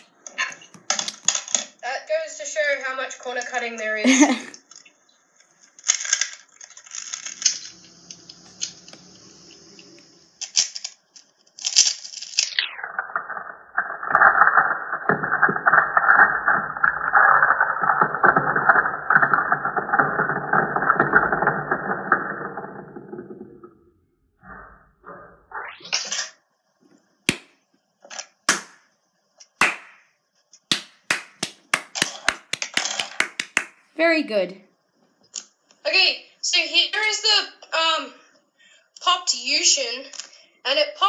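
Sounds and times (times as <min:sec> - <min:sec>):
speed cube clicking: 0:30.7 - 0:33.7.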